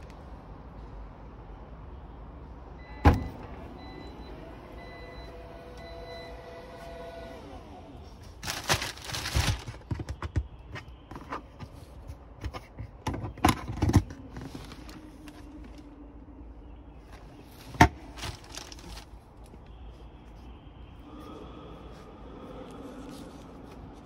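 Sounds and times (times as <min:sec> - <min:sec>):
plastic wrapping crinkling: 0:08.4 - 0:10.2, 0:18.0 - 0:19.5.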